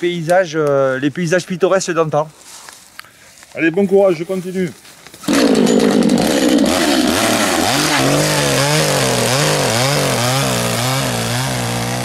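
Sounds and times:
chainsaw revving: 0:05.3 - 0:12.0.

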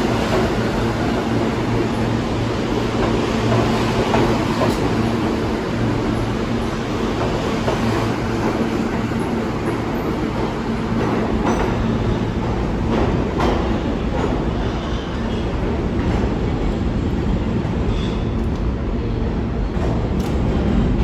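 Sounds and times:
subway train wheels rumbling: 0:00.0 - 0:21.0.

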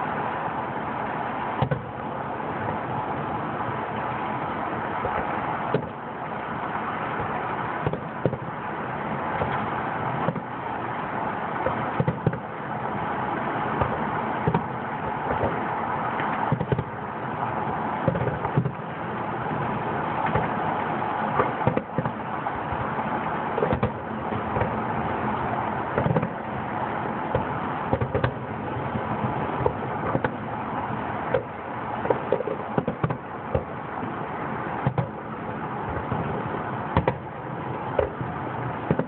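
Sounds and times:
steady background noise: 0:00.0 - 0:39.0
firework shells bursting: 0:17.6 - 0:20.6, 0:21.2 - 0:33.9.

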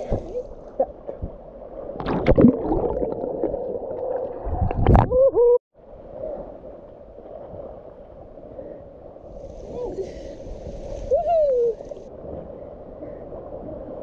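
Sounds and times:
water splashing: 0:01.7 - 0:05.2.

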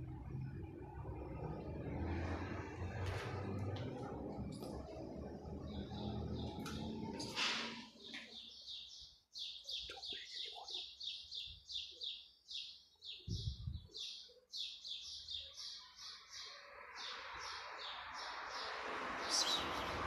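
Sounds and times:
small bird chirping: 0:05.7 - 0:20.0.

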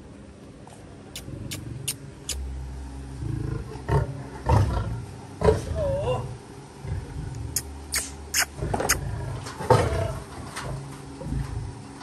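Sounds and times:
lioness growling and roaring: 0:03.2 - 0:07.6, 0:08.6 - 0:11.8.

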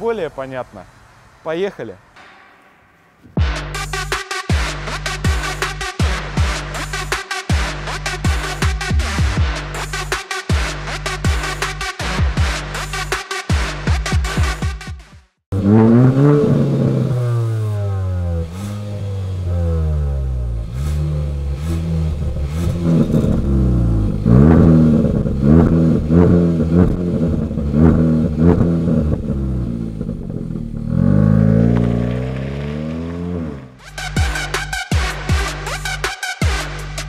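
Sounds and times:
car engine revving: 0:15.5 - 0:37.0.

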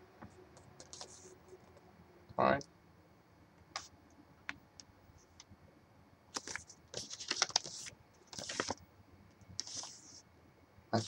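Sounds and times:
paper and plastic rustling: 0:06.4 - 0:08.8.

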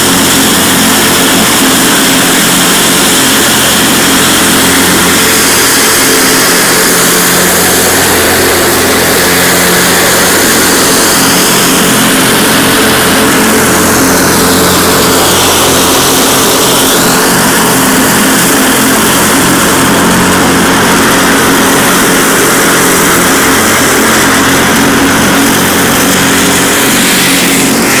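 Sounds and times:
mower mulching dry leaves: 0:00.0 - 0:28.0
riding mower engine droning: 0:00.0 - 0:28.0.

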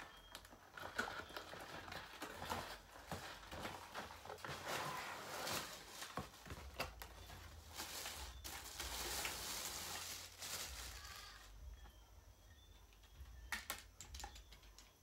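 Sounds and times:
plastic wrapping crinkling: 0:00.0 - 0:11.6.

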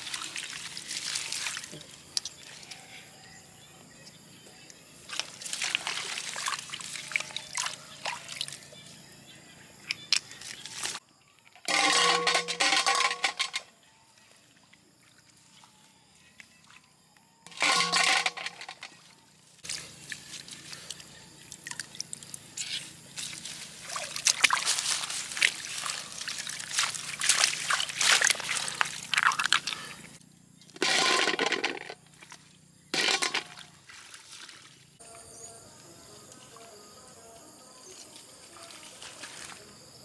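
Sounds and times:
water splashes: 0:00.0 - 0:02.2, 0:05.1 - 0:08.7, 0:19.6 - 0:30.1, 0:33.0 - 0:34.8
pond water sloshing and dripping: 0:00.0 - 0:02.8, 0:05.0 - 0:08.9, 0:09.9 - 0:35.1, 0:38.4 - 0:39.7.

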